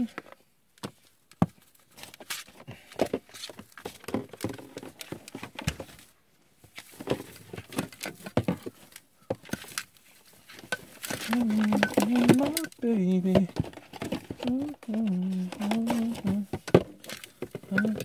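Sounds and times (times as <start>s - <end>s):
tinsel garland rustling: 8.7s - 16.6s.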